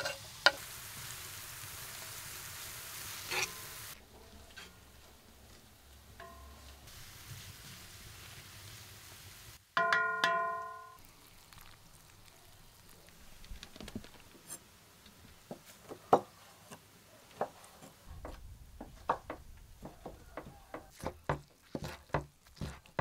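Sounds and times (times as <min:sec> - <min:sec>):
frying hiss from pan: 0:00.0 - 0:09.8, 0:10.6 - 0:16.5
knife cutting on wooden board: 0:21.0 - 0:23.0.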